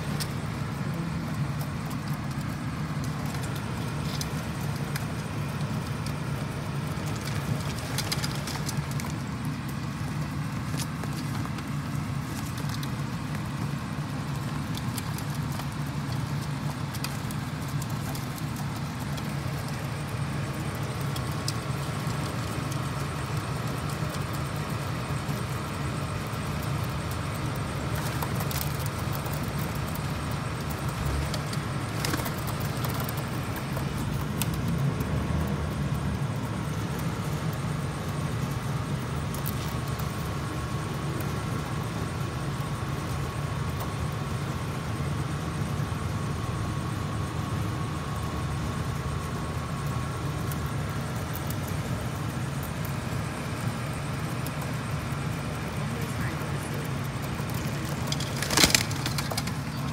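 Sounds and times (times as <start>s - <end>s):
faint steady whine: 0.0s - 59.9s
low mechanical hum: 0.0s - 59.9s
traffic: 0.0s - 59.9s.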